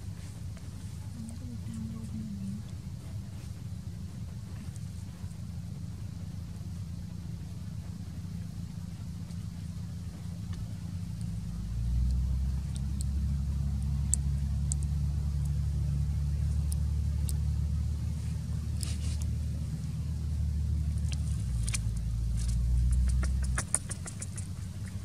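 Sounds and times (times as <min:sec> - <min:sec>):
low motor hum: 0:00.0 - 0:25.0
faint high ticks: 0:12.0 - 0:15.6, 0:20.9 - 0:25.0.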